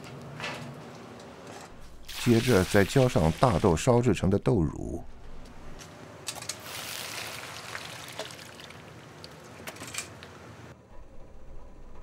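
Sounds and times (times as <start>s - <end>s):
soy milk pouring and splashing: 2.1s - 3.7s, 6.6s - 9.6s.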